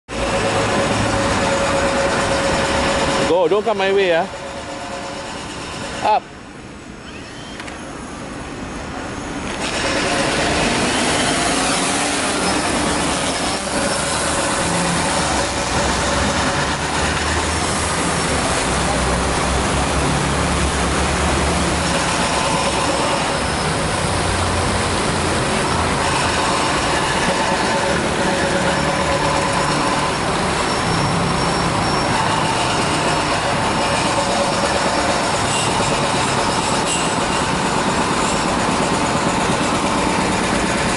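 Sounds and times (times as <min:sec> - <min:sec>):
drone propellers whirring: 0:00.1 - 0:40.9.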